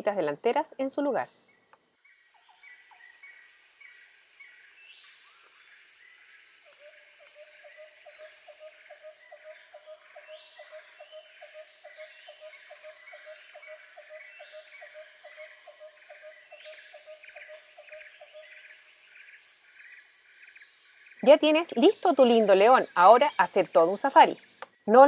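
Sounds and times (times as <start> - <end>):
birds chirping: 0.0 - 25.0
insects chirping: 0.0 - 25.0
steady pulsing call: 6.6 - 18.8.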